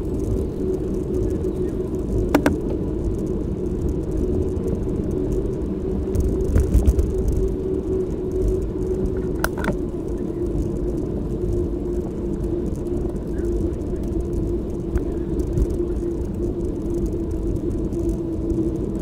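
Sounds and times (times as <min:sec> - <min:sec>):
bicycle tyre noise: 0:00.0 - 0:19.0
wind on microphone: 0:00.0 - 0:19.0.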